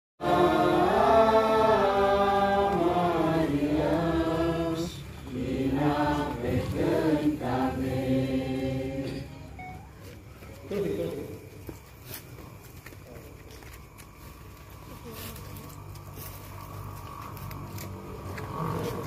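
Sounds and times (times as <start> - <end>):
group singing held notes: 0.2 - 9.5.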